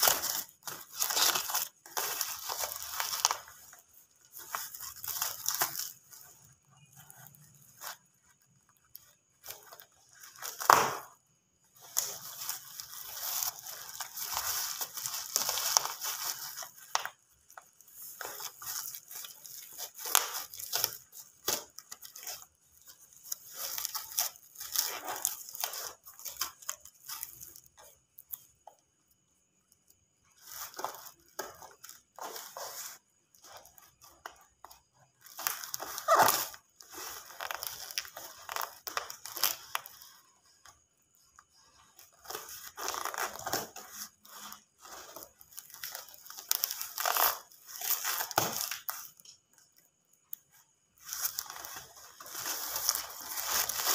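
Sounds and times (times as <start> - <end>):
cardboard tearing and crumpling: 0.0 - 8.1, 8.8 - 11.2, 11.8 - 17.2, 17.8 - 27.6, 35.2 - 40.2, 42.1 - 49.1, 51.0 - 53.9.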